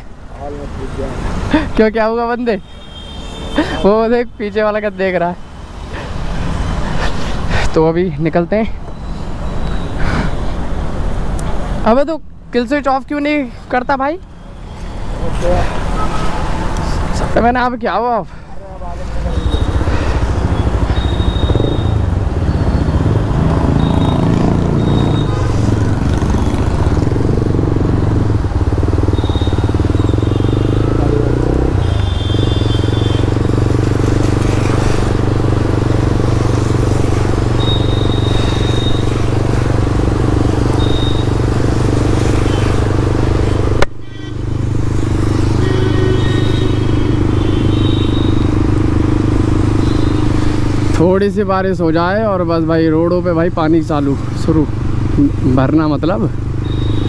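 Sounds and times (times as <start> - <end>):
road and wind noise: 0.0 - 57.0
motorcycle engine running: 19.2 - 43.8.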